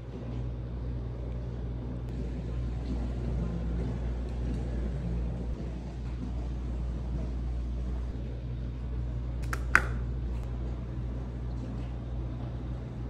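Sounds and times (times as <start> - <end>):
low room hum: 0.0 - 13.0
sharp click: 9.4 - 10.0.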